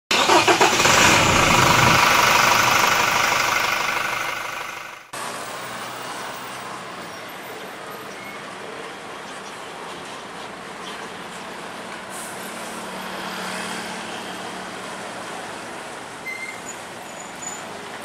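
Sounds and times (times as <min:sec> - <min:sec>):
truck diesel engine running: 0:00.1 - 0:05.1
traffic noise: 0:00.1 - 0:18.0.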